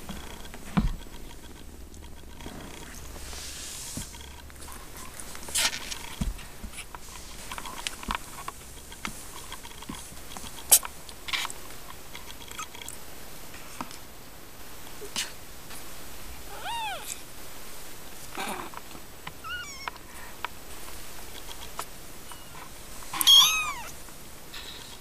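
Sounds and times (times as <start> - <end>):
rustling of fur and blanket: 0.0 - 25.0
kittens suckling clicks: 6.8 - 13.0.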